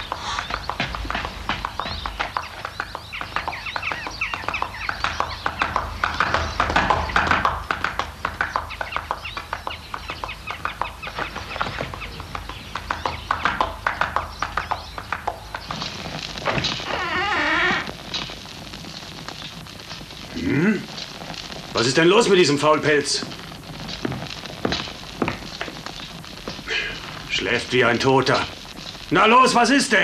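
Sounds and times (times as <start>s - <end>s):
chickens clucking: 0.0s - 16.8s
galloping horse hoofbeats: 0.0s - 30.0s.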